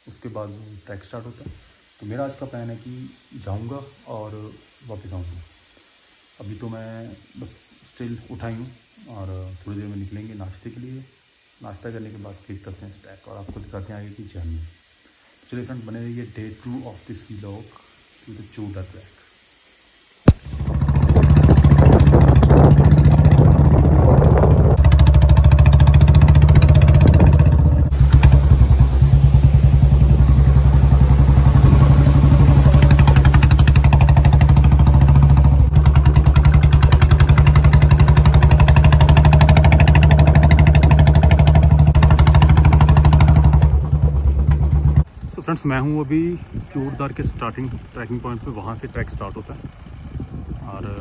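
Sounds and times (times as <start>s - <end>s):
motorcycle engine running: 20.3s - 45.1s.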